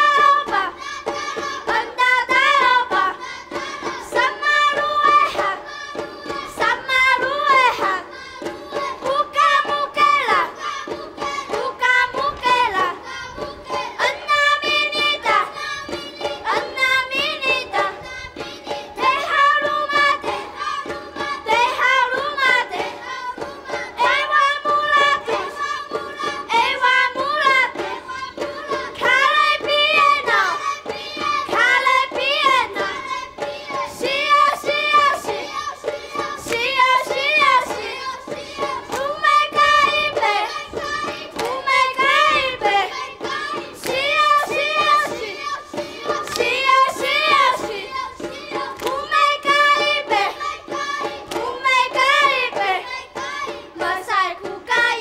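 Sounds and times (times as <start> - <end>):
children singing over music: 0.0 - 55.0.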